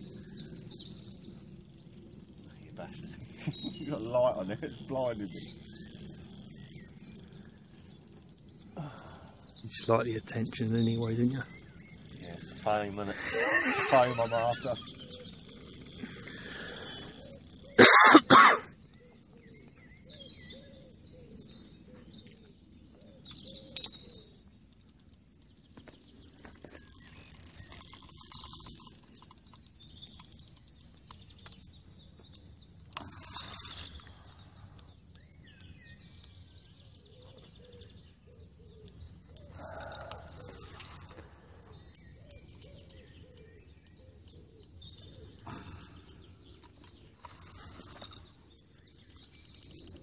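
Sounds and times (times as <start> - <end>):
birds chirping: 0.0 - 50.0
person coughing: 17.8 - 18.7.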